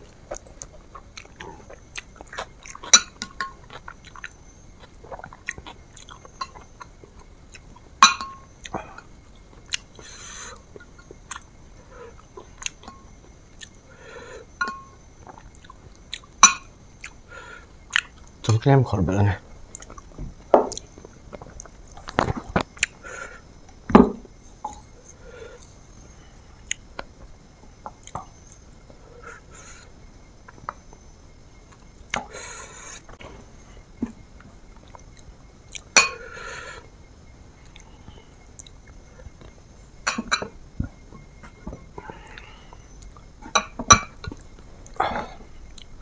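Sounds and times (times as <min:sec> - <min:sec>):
person chewing: 0:00.0 - 0:03.0, 0:03.6 - 0:07.8, 0:12.1 - 0:13.8, 0:34.8 - 0:35.9, 0:37.6 - 0:37.9, 0:44.3 - 0:45.9.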